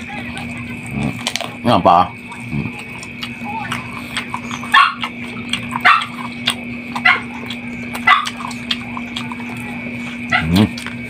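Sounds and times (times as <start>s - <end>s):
steady hum: 0.0s - 11.0s
dog barking: 4.0s - 9.6s, 10.3s - 10.8s.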